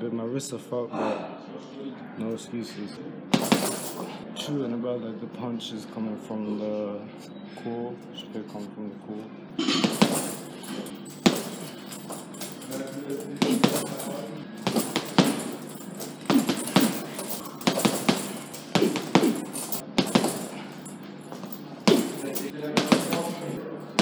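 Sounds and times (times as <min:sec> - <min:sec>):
boxing gloves punching heavy bag: 0:03.4 - 0:04.2, 0:09.7 - 0:24.0.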